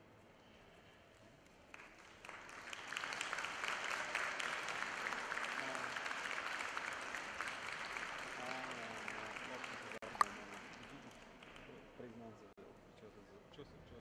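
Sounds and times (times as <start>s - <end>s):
audience applauding: 1.7s - 11.8s.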